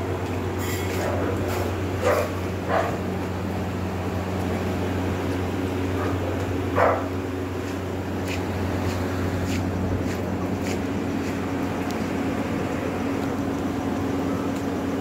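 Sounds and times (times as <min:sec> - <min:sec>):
low mechanical hum: 0:00.0 - 0:15.0
dog barking: 0:02.0 - 0:03.0, 0:06.8 - 0:07.2.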